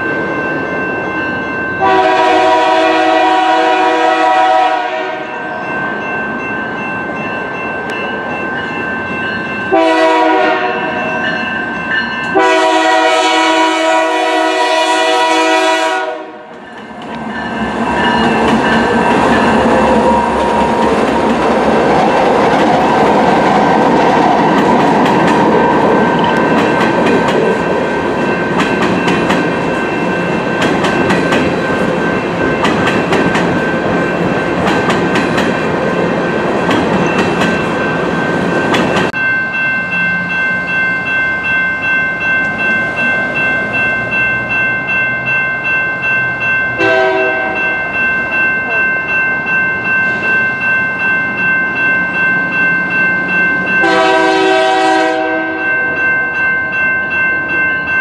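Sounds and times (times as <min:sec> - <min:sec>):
crossing bell ringing: 0:00.0 - 0:58.0
locomotive air horn: 0:01.8 - 0:05.4, 0:09.7 - 0:11.0, 0:12.4 - 0:16.5, 0:46.8 - 0:47.6, 0:53.8 - 0:55.7.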